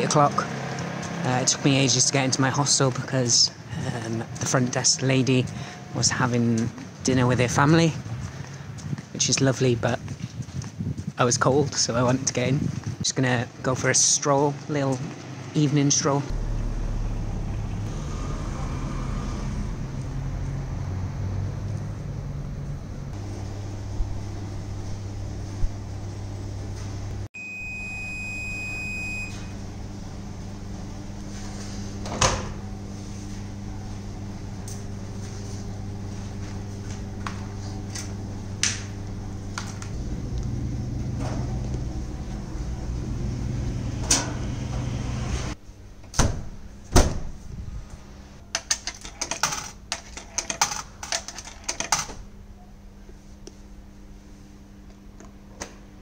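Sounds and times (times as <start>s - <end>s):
low machine hum: 16.2s - 56.0s
washer control panel beep: 27.4s - 29.6s
dryer glass door shutting: 32.0s - 32.6s, 43.3s - 47.4s
coins clicking into coin slot: 48.6s - 52.1s.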